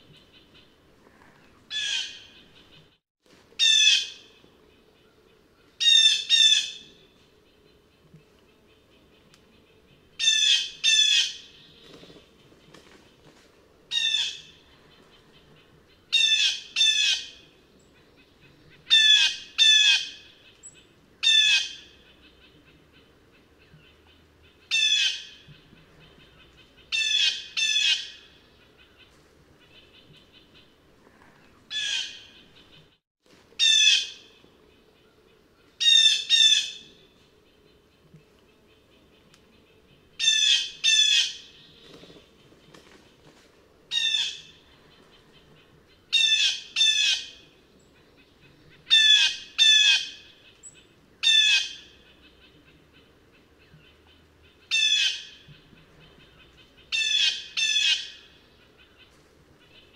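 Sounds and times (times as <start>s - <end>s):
blue jay calling: 1.7s - 2.7s, 46.1s - 47.4s, 48.8s - 52.5s, 54.4s - 55.4s, 56.0s - 59.1s.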